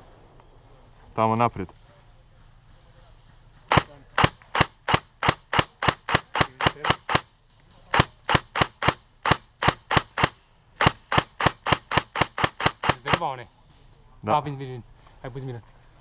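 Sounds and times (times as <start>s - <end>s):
airsoft rifle shots: 3.7s - 7.3s, 7.9s - 13.4s.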